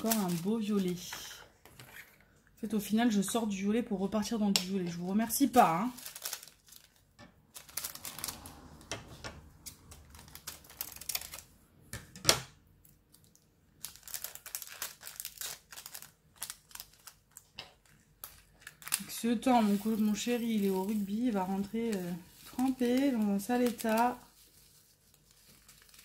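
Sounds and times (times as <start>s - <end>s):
plastic bags crinkling: 0.0s - 1.4s, 5.2s - 8.8s, 9.8s - 11.5s, 13.1s - 26.0s.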